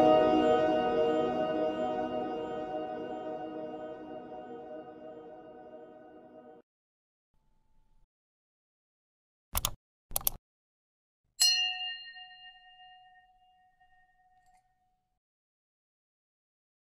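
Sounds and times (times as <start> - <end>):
short clicks: 9.6 - 10.4
bright bell ding: 11.4 - 14.5.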